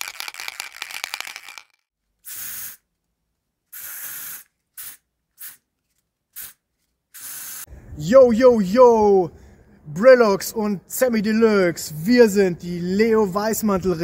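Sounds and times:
paper crumpling: 0:00.0 - 0:01.8
aerosol spray can hissing: 0:02.2 - 0:02.9, 0:03.7 - 0:05.7, 0:06.4 - 0:07.7.

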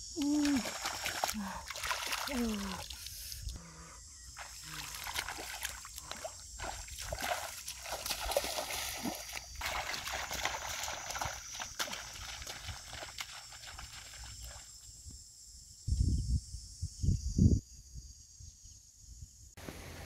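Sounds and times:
bare feet splashing in muddy water: 0:00.2 - 0:03.6, 0:04.3 - 0:14.8.

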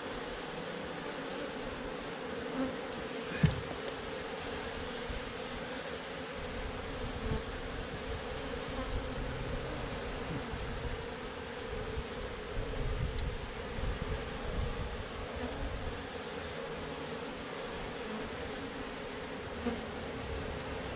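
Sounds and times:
bees buzzing: 0:00.0 - 0:20.9.

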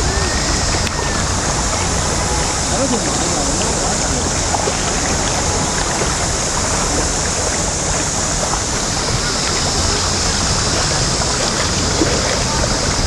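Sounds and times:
river water rushing over stones: 0:00.0 - 0:13.0.

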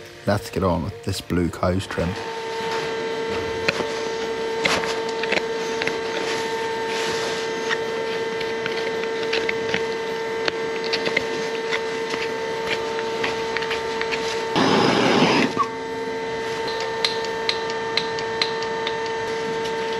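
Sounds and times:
steady machine hum: 0:00.0 - 0:19.9.

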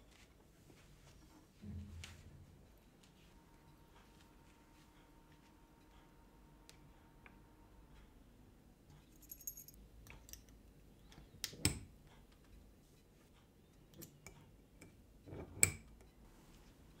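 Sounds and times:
metal clips clicking on glass jar: 0:10.0 - 0:10.6.

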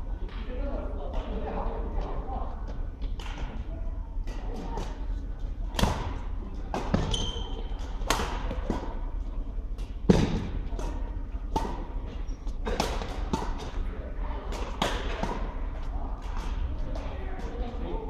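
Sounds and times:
rackets striking shuttlecock: 0:05.7 - 0:09.0, 0:09.8 - 0:13.9
shoe squeak on floor: 0:07.0 - 0:07.7.

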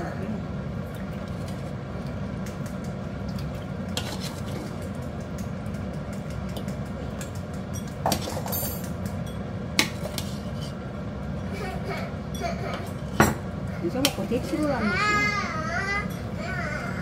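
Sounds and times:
steady low hum: 0:00.0 - 0:17.0
utensils clinking on pot and bowl: 0:06.1 - 0:10.5.

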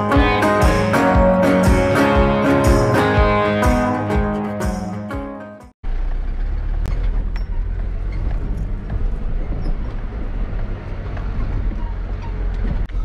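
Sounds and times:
rumble of engine and tyres: 0:05.8 - 0:13.0
vehicle clicks and knocks: 0:06.8 - 0:13.0.

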